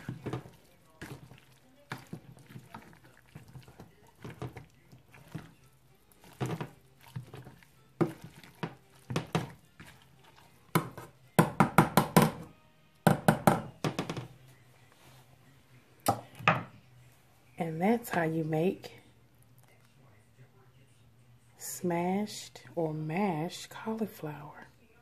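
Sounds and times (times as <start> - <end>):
potato masher knocking on pan: 6.3 - 9.6, 10.7 - 12.5.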